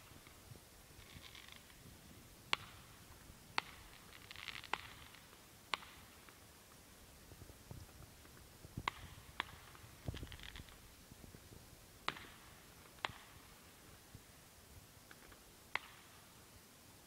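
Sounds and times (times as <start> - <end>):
faint crackling: 0.0 - 13.5
distant fireworks cracks: 0.0 - 14.0, 15.7 - 16.3.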